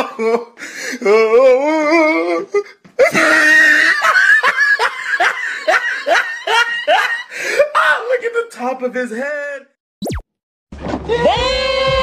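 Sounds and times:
man laughing: 0.0s - 0.5s, 3.0s - 7.4s.

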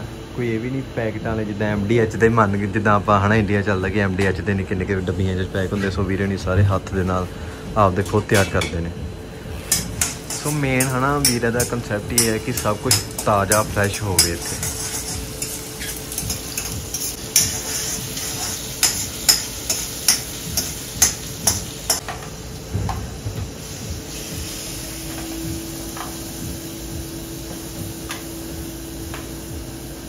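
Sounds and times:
steady low hum: 0.0s - 30.0s
sauce sizzling: 12.1s - 30.0s.

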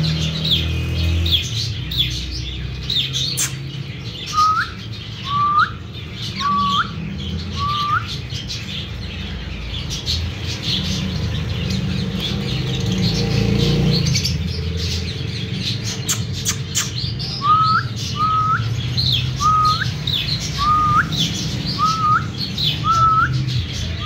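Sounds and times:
parrots chirping: 0.0s - 24.0s
rising bird whistles: 4.3s - 8.2s, 16.1s - 23.4s.

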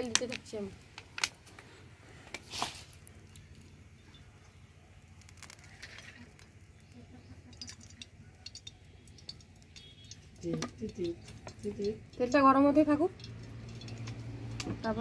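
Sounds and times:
oil trickling into pan: 5.2s - 15.0s.

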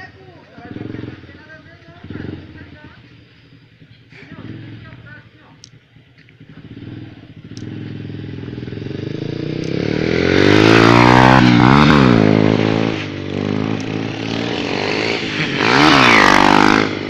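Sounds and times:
motorcycle engine revving past: 0.0s - 5.2s, 6.3s - 17.0s.

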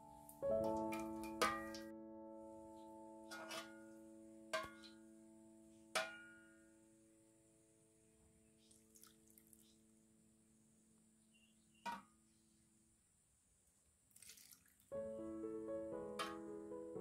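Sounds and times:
piano music: 0.0s - 5.7s, 14.9s - 17.0s
soft music: 0.0s - 9.3s, 14.9s - 17.0s
ladle clinking on metal pot: 0.9s - 1.8s, 3.3s - 3.8s
syrup splashing and dripping: 8.7s - 9.7s, 14.1s - 14.9s.

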